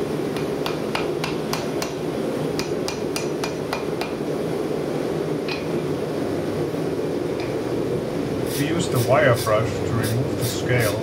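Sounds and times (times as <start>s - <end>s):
gas forge burner rushing: 0.0s - 11.0s
hammer tapping on hot steel: 0.3s - 2.0s, 2.6s - 4.2s, 5.5s - 5.7s.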